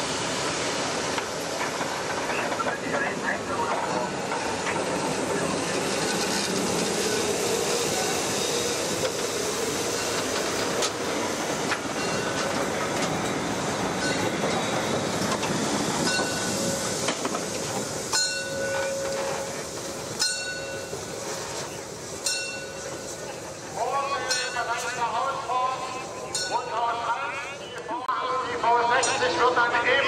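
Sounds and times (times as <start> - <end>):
train wheels clicking over rails: 0.0 - 25.2.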